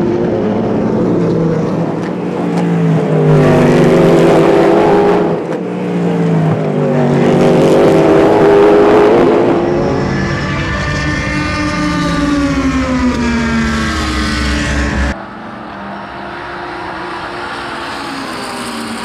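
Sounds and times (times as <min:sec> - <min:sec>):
distant car engine: 0:00.0 - 0:19.0
race car engine passing: 0:00.0 - 0:19.0.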